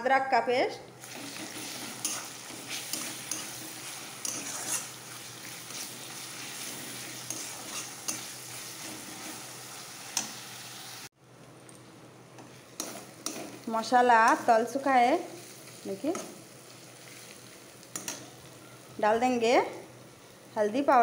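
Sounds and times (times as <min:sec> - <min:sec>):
spatula scraping metal pan: 0:01.0 - 0:09.6
onions sizzling in hot oil: 0:01.0 - 0:11.1, 0:12.4 - 0:21.0.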